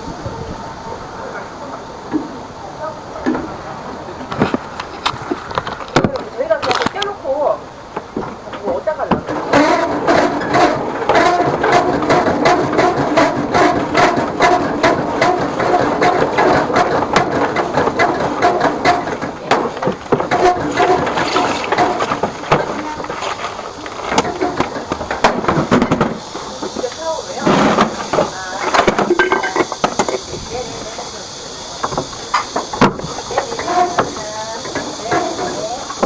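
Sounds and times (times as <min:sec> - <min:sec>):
rapid irregular clicking: 0:07.9 - 0:27.1.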